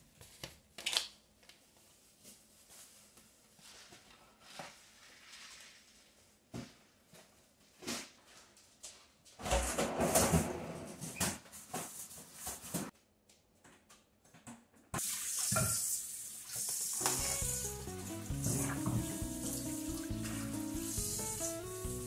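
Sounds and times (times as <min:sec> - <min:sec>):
faucet running into sink: 0:15.0 - 0:21.6.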